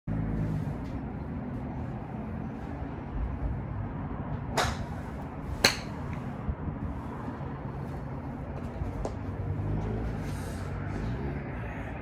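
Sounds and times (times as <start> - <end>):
wind buffeting microphone: 2.8 - 10.0
golf club striking ball: 4.5 - 4.9, 5.6 - 6.0.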